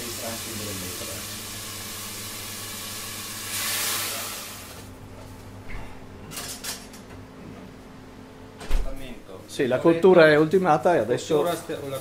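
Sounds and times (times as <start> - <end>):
pan hissing and sizzling: 0.0 - 4.9
pots and utensils clinking: 6.3 - 7.1.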